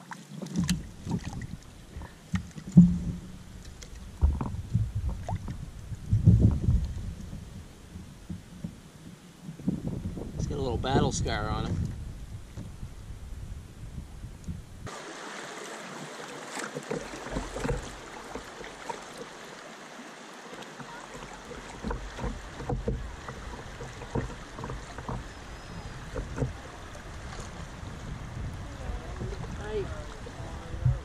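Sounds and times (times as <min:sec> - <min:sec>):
small splashes against hull: 0:00.0 - 0:12.8, 0:14.5 - 0:31.0
river water rushing: 0:14.8 - 0:31.0.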